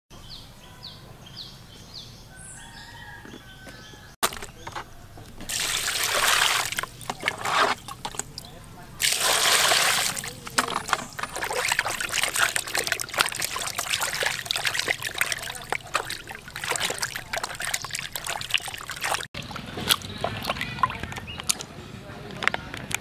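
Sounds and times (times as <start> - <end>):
hands splashing in water basin: 5.4 - 21.6.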